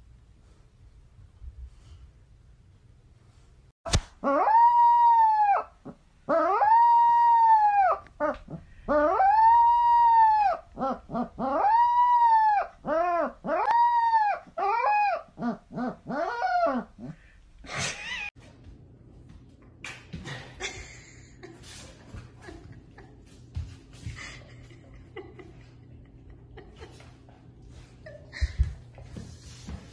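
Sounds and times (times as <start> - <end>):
puppy howling: 4.2 - 17.2.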